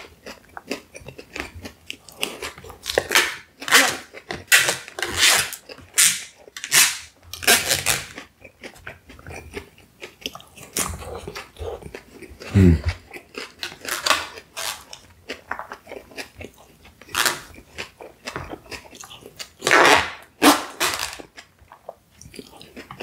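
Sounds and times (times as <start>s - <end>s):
close chewing with wet mouth clicks: 0.0s - 4.8s, 8.1s - 19.6s, 21.2s - 23.0s.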